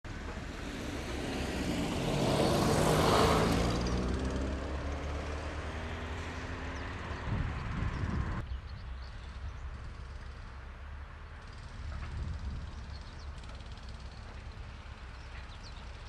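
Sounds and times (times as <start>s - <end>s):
road vehicle passing: 0.1s - 8.5s
low engine hum: 0.1s - 16.0s.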